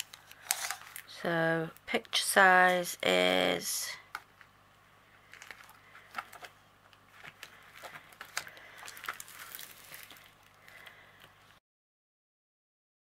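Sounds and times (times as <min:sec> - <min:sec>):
plastic film crinkling: 0:00.0 - 0:02.0, 0:05.2 - 0:11.6.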